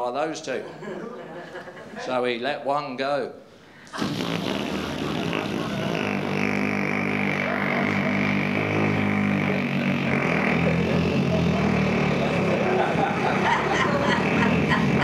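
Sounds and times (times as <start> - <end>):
man blowing a raspberry: 3.9 - 15.0.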